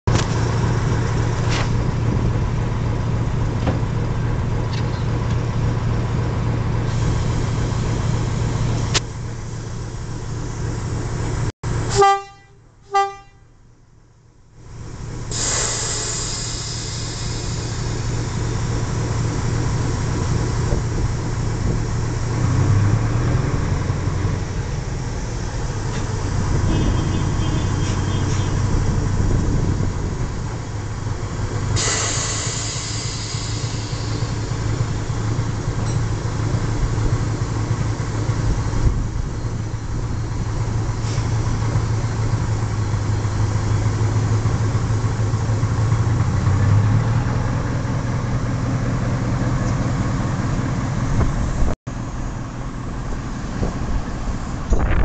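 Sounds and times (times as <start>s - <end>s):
diesel locomotive engine drone: 0.0s - 55.0s
locomotive horn toots: 11.8s - 13.6s, 26.5s - 28.8s.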